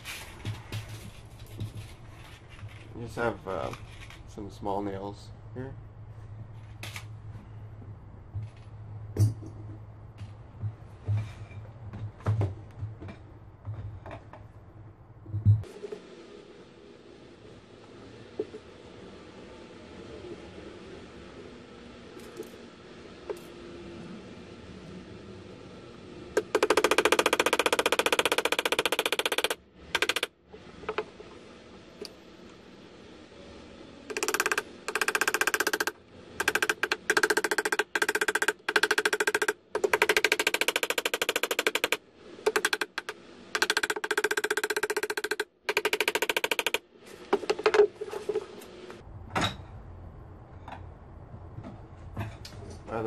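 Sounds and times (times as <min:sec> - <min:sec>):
hammer striking nails into wood: 0:26.4 - 0:30.3.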